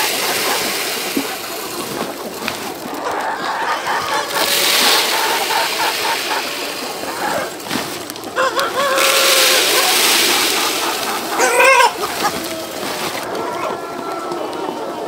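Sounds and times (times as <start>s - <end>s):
steady hiss: 0.0s - 13.3s
chickens clucking: 0.0s - 15.0s
rooster crowing: 3.0s - 7.5s, 8.4s - 12.1s.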